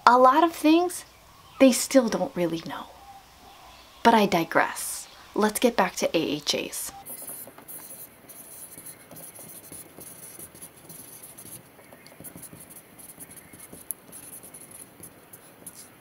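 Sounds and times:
marker scratching on whiteboard: 7.0s - 16.0s.

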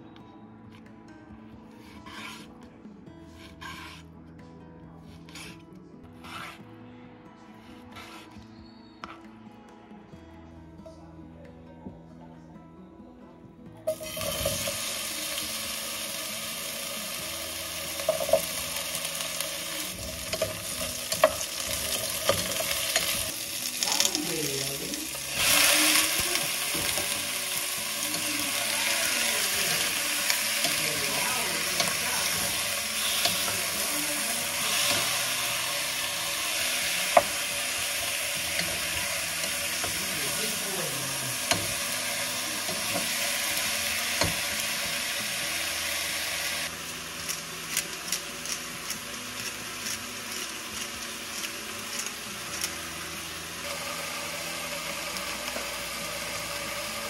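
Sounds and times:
food sizzling in hot oil: 13.9s - 57.0s.

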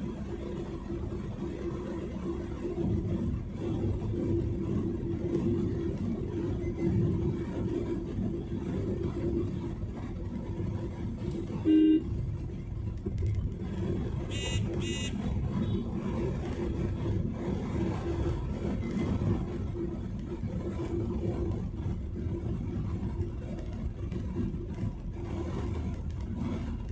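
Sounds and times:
car cabin road noise: 0.0s - 26.9s
vehicle horn blast: 11.5s - 12.2s, 14.3s - 15.8s.

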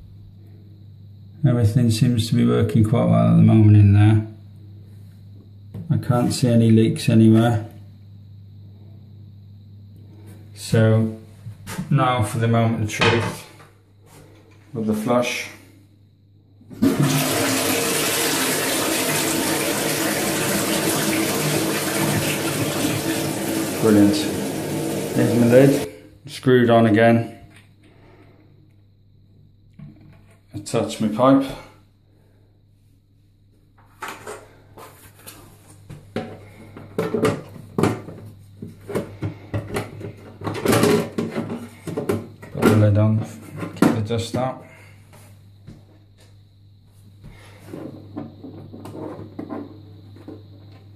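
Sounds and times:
toilet flushing: 16.7s - 26.0s.

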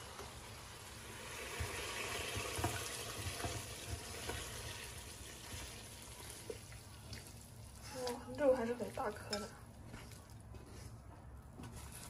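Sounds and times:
sauce hissing and bubbling: 0.4s - 7.8s.

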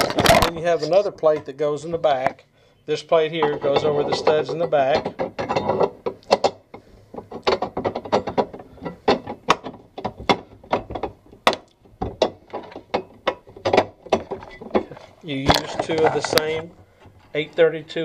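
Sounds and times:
metal plate clicking and knocking: 3.3s - 17.3s.

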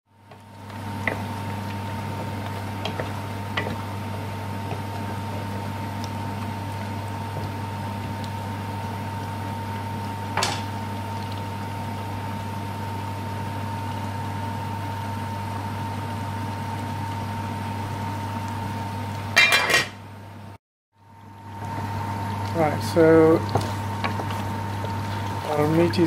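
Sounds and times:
curry bubbling: 0.1s - 19.3s, 21.0s - 26.0s.

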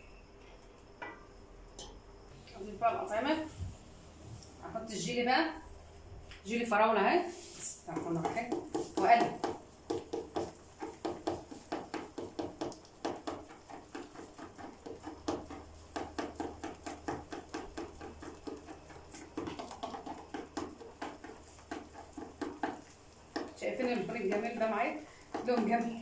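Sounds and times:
spatula stirring in steel bowl: 7.4s - 26.0s.

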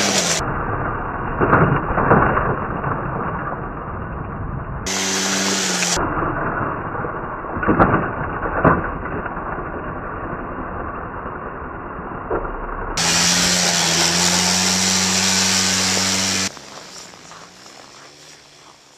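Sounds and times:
small quad engine running: 0.0s - 1.0s, 4.9s - 6.0s, 13.0s - 18.9s.

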